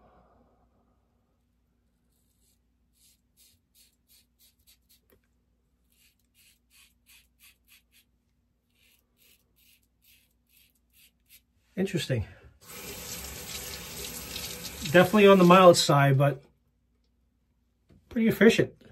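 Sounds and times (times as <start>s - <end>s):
razor strokes through stubble: 2.1s - 5.2s, 5.8s - 8.1s, 8.7s - 11.5s.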